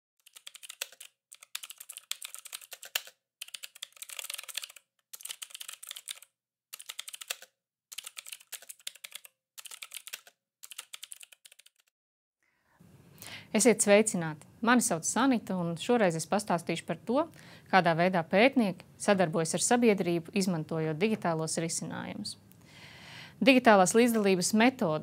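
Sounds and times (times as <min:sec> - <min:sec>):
fast typing on keyboard: 0:00.2 - 0:11.9.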